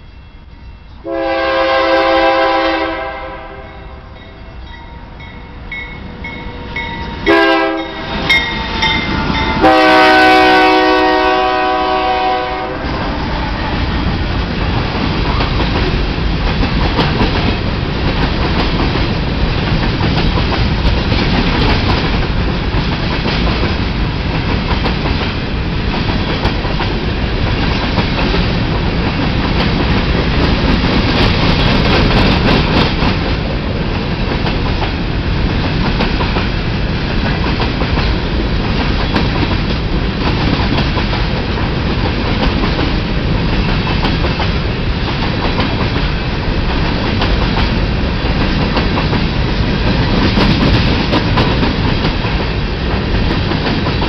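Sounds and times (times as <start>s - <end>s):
train wheels rumbling on rails: 0.6s - 54.0s
locomotive horn blasts: 1.0s - 5.3s, 6.2s - 13.8s.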